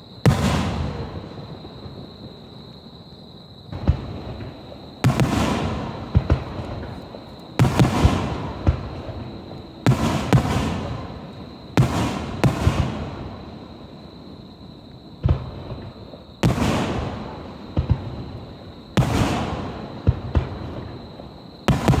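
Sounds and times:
sharp firework cracks: 0:00.2 - 0:01.1, 0:03.8 - 0:07.0, 0:09.8 - 0:11.2, 0:11.8 - 0:13.2, 0:15.2 - 0:18.1, 0:21.7 - 0:22.0
firework booms: 0:00.2 - 0:02.5, 0:03.7 - 0:14.0, 0:15.2 - 0:22.0.

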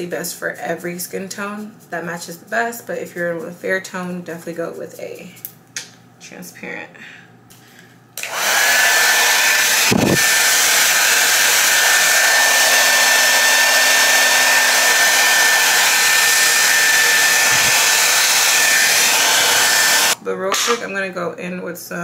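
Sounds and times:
hair dryer running: 0:08.2 - 0:20.2.

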